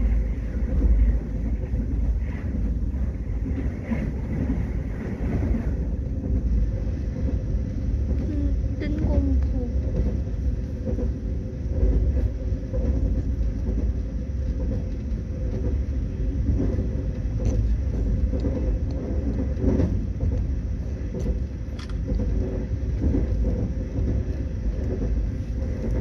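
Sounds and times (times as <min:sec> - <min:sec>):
moving vehicle rumble: 0:00.0 - 0:26.0
faint knocks and clicks: 0:08.9 - 0:26.0.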